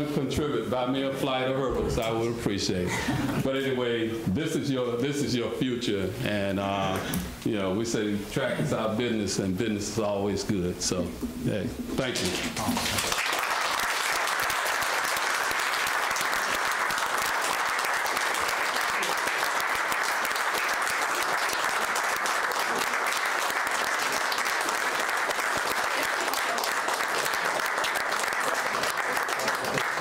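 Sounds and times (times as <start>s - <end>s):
crowd applauding: 12.1s - 30.0s.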